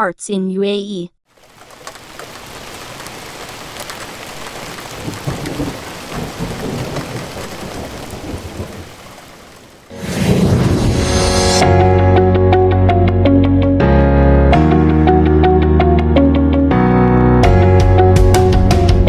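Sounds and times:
heavy rain falling: 0:01.3 - 0:09.9
low rolls of thunder: 0:05.0 - 0:09.0, 0:10.0 - 0:11.5.

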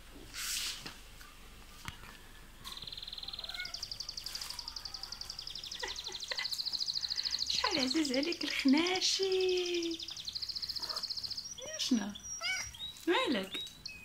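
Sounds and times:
high-pitched chirping trills: 0:02.2 - 0:14.0.

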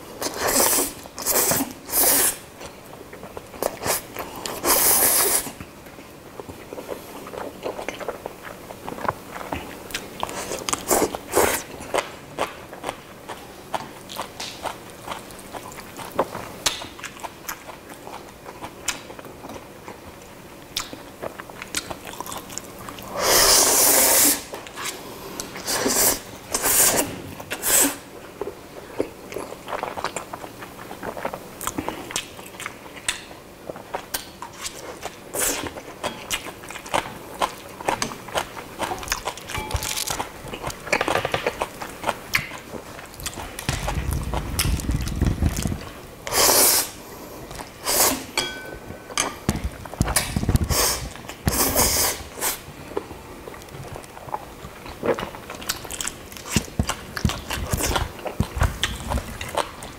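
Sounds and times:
wet chewing and mouth clicks: 0:00.2 - 0:23.6, 0:28.4 - 0:46.8, 0:49.6 - 0:59.9.

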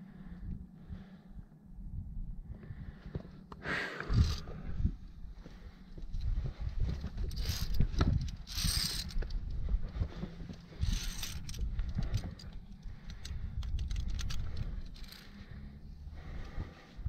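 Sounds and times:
low rumble: 0:00.0 - 0:17.0
climbing gear clinking: 0:04.0 - 0:04.6, 0:06.0 - 0:15.8
small metallic clicks: 0:07.2 - 0:09.6, 0:10.5 - 0:15.6.

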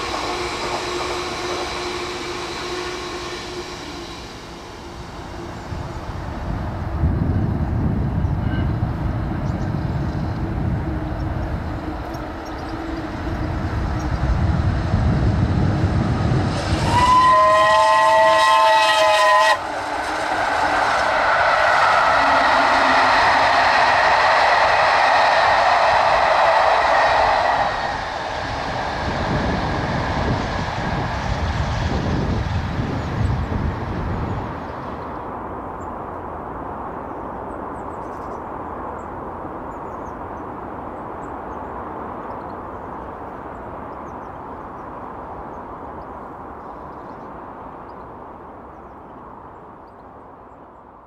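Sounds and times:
passenger train rushing past: 0:00.0 - 0:51.0.

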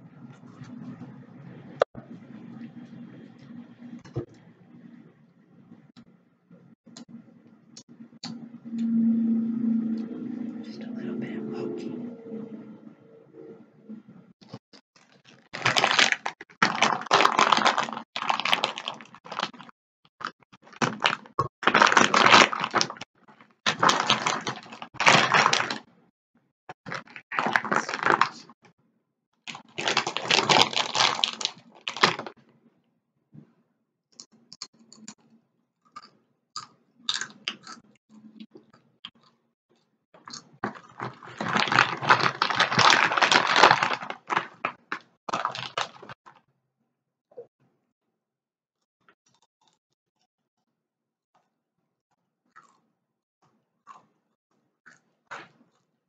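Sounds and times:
chips crunching: 0:15.0 - 0:23.0, 0:23.7 - 0:25.8, 0:26.9 - 0:28.5, 0:29.5 - 0:32.3, 0:40.2 - 0:46.4
foil bag crinkling: 0:15.0 - 0:25.8, 0:26.9 - 0:28.5, 0:29.5 - 0:32.4, 0:40.6 - 0:46.4.

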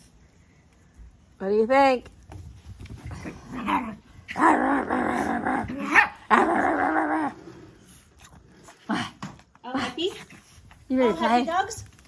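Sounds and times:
small dogs growling in play: 0:03.0 - 0:09.4.

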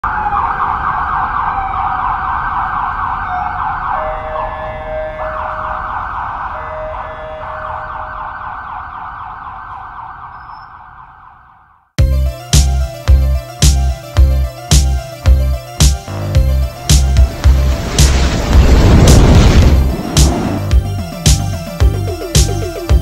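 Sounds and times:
emergency siren wailing: 0:00.0 - 0:11.9
second siren tone: 0:00.0 - 0:11.9
music with heavy beat: 0:12.0 - 0:18.2, 0:20.2 - 0:23.0
low traffic rumble: 0:15.3 - 0:22.2.

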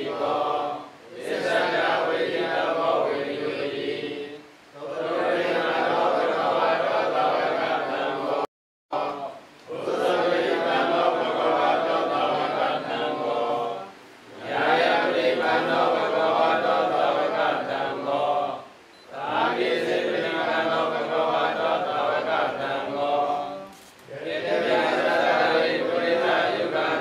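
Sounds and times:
men chanting in unison: 0:00.0 - 0:27.0.

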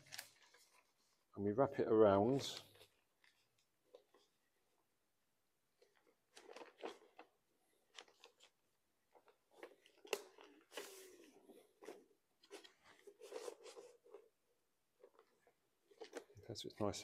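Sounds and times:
newspaper rustling: 0:00.0 - 0:01.3, 0:05.8 - 0:14.3.

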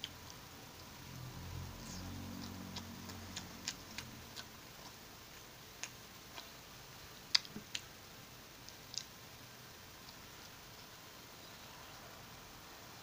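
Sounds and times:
faint low hum: 0:00.0 - 0:13.0
small sharp clicks and ticks: 0:08.6 - 0:09.2.

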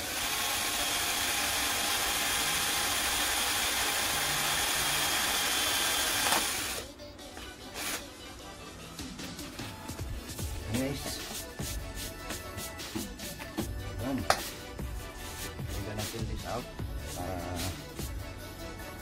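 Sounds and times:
power tool whirring: 0:00.0 - 0:06.9, 0:07.7 - 0:08.0
background music: 0:01.9 - 0:19.0.

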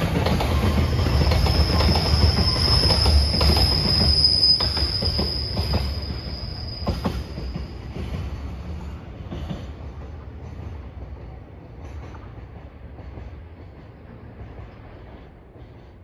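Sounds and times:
freight train rumble: 0:00.0 - 0:16.0.

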